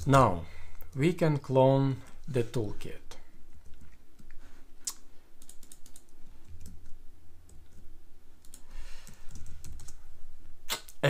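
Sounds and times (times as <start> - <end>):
keyboard typing: 5.4 - 10.0.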